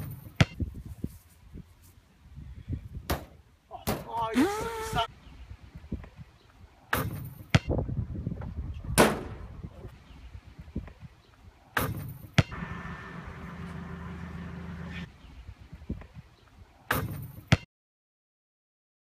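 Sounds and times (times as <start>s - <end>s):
basketball hitting backboard and rim: 6.9s - 7.8s, 9.0s - 9.4s, 11.8s - 12.6s, 16.9s - 17.7s
steady low hum: 12.5s - 15.5s.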